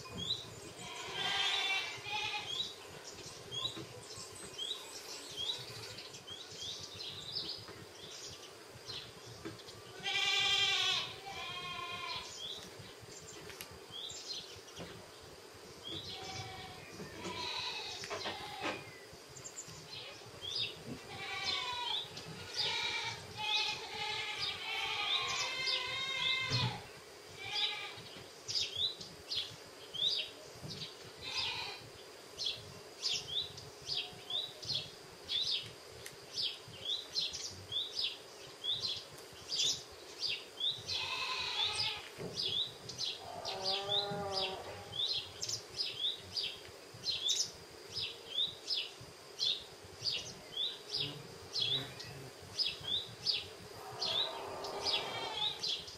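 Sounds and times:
bleat-like animal calls: 0.8 - 2.6, 10.0 - 12.3, 16.1 - 18.8, 21.1 - 28.0, 31.2 - 31.8, 40.9 - 42.1, 43.2 - 44.9, 53.8 - 55.6
bird chirping: 36.4 - 55.9.

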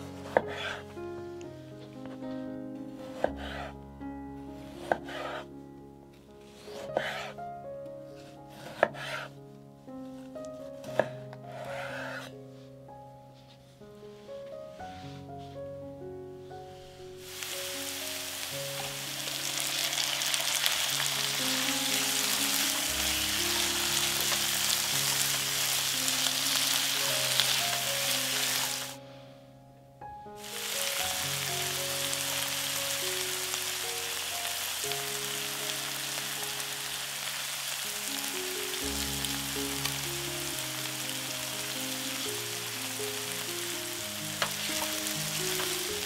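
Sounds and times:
food sizzling in oil: 17.2 - 29.0, 30.4 - 46.0.

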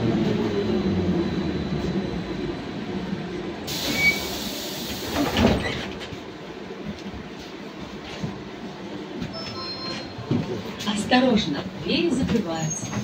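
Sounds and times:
trolleybus electric drive hum: 0.0 - 13.0
pneumatic doors clunking: 3.7 - 6.1.

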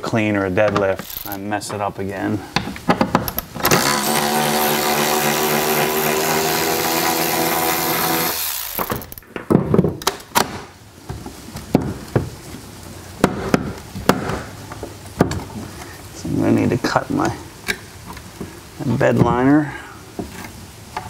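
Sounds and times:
cordless electric ratchet running: 1.0 - 1.4, 3.6 - 9.2.

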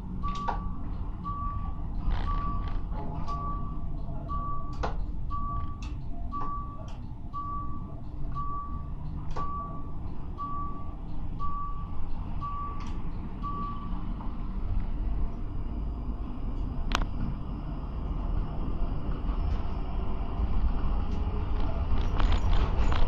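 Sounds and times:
low vehicle rumble: 0.0 - 23.0
electronic warning beeps: 0.2 - 14.6.

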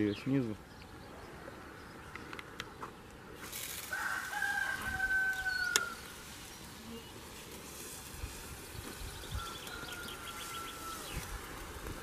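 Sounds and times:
rooster crowing: 3.9 - 6.1, 9.2 - 11.6.

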